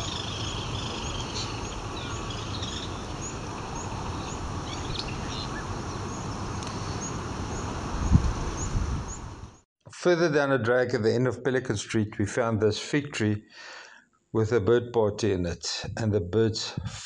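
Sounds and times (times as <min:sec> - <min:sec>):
outdoor background hiss: 0:00.0 - 0:09.6
small birds chirping: 0:00.0 - 0:09.6.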